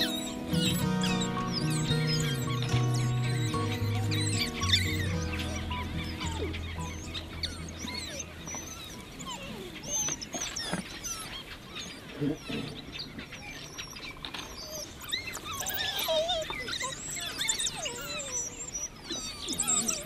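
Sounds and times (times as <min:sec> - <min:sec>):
music track: 0:00.0 - 0:08.9
wild dogs twittering squeaks: 0:00.0 - 0:20.0.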